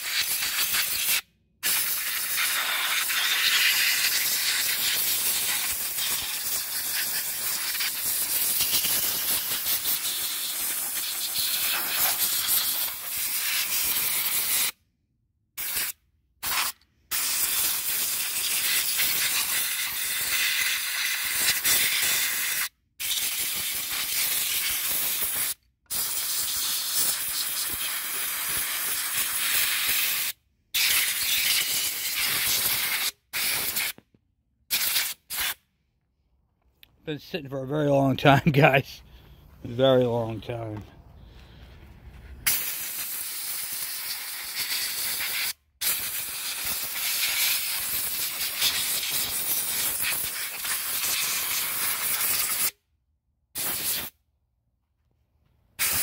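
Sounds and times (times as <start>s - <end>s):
compressed air blow gun hissing: 0.0s - 14.8s, 15.6s - 19.8s.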